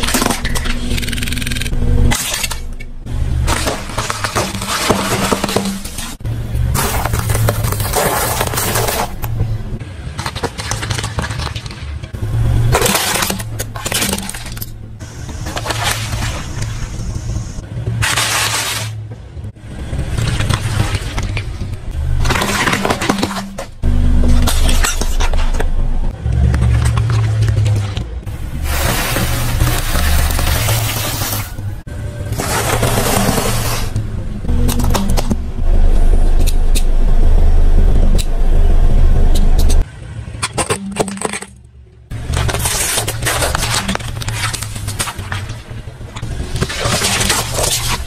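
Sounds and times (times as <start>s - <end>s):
car engine rumbling: 0.0s - 18.1s, 19.0s - 48.0s
plastic cup crushed by tyre: 12.7s - 14.7s
tyre crushing soft objects: 26.5s - 34.0s.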